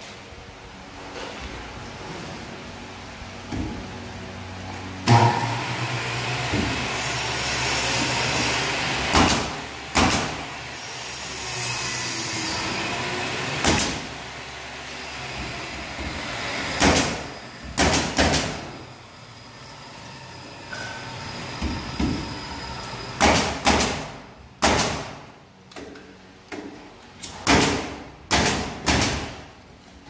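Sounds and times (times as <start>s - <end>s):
air compressor humming: 0.0s - 30.0s
nail gun firing: 9.1s - 10.4s, 13.6s - 14.1s, 16.7s - 18.7s, 23.2s - 25.3s, 27.2s - 29.4s.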